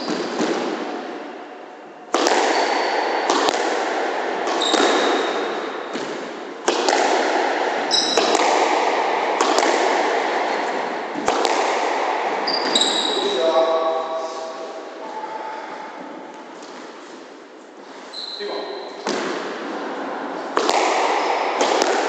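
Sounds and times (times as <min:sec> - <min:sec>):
squash ball smacks echoing: 0:00.0 - 0:01.3, 0:02.1 - 0:13.6, 0:18.9 - 0:22.0
shoes squeaking on wooden floor: 0:04.5 - 0:05.4, 0:07.9 - 0:08.3, 0:12.4 - 0:13.3, 0:17.9 - 0:19.1.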